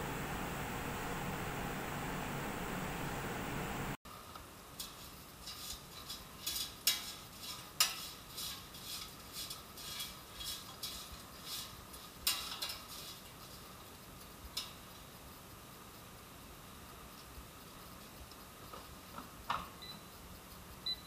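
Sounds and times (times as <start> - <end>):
metal tongs scraping a basket: 4.8 - 13.3.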